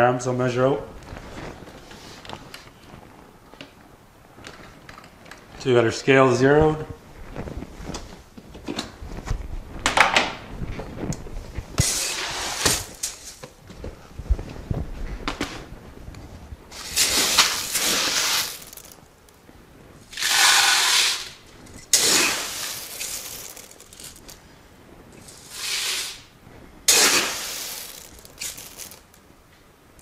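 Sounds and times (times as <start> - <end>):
seeds pouring into plastic pitcher: 16.8 - 19.0, 20.1 - 24.4, 25.2 - 26.3, 26.9 - 29.2.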